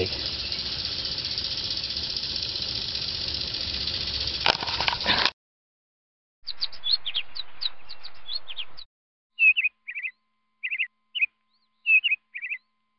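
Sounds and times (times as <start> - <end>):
small birds chirping: 0.0 - 4.4, 6.5 - 8.8, 9.4 - 12.7.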